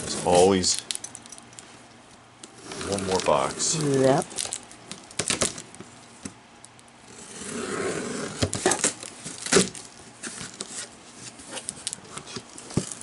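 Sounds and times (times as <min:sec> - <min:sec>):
scissors scraping along tape: 0:02.6 - 0:04.0.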